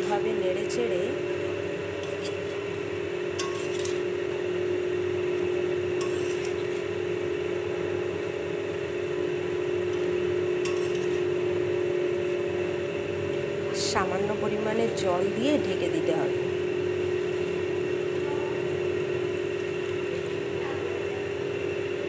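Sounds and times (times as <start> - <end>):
steady low hum: 0.0 - 22.0
leaves rustling in pan: 1.9 - 4.6, 5.3 - 7.0, 9.8 - 11.4, 16.9 - 20.6
spatula scraping pan: 2.0 - 2.6, 3.4 - 4.0, 6.0 - 6.9, 10.6 - 11.4.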